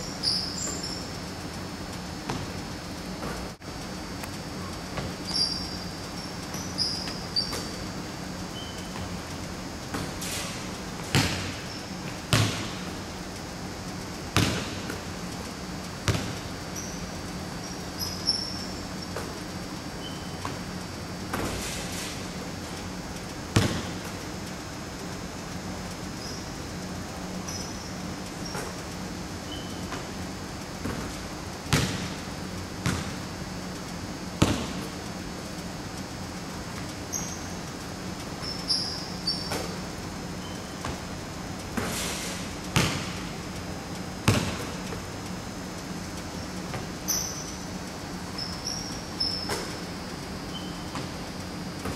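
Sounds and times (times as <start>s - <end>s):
sneaker squeaks: 0.0s - 1.2s, 4.6s - 9.2s, 9.9s - 13.0s, 16.1s - 19.4s, 20.0s - 22.3s, 26.1s - 26.6s, 27.4s - 30.2s, 36.7s - 37.6s, 38.4s - 41.1s, 42.8s - 43.2s, 44.2s - 45.1s, 46.3s - 51.2s
steady low hum: 0.0s - 51.9s
basketball thuds with echo: 11.0s - 11.6s, 12.3s - 12.9s, 14.4s - 15.0s, 16.1s - 16.4s, 23.6s - 24.1s, 31.7s - 32.2s, 32.8s - 33.2s, 34.4s - 34.9s, 42.8s - 43.2s, 44.2s - 44.8s
basketball thudding on wooden floor: 44.3s - 44.7s.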